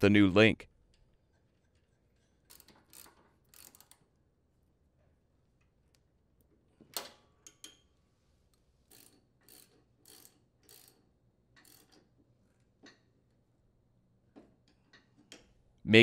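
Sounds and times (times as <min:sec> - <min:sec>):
socket ratchet clicking: 0:02.5 - 0:04.0.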